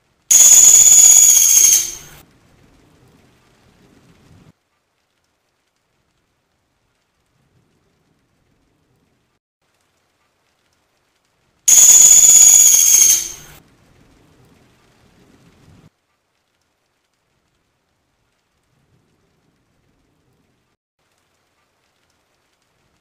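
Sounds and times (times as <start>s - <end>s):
woodpecker high-pitched trill: 0.3s - 2.2s, 11.7s - 13.5s.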